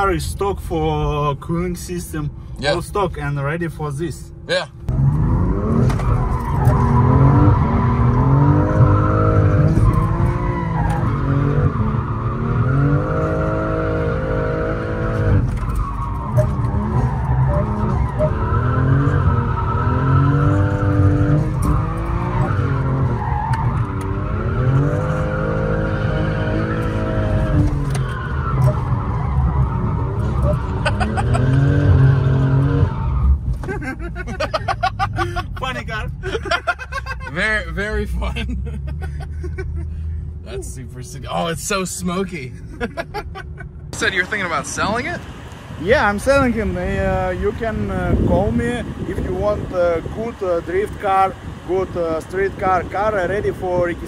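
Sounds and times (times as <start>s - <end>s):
car engine revving: 4.8s - 35.1s, 43.9s - 54.0s.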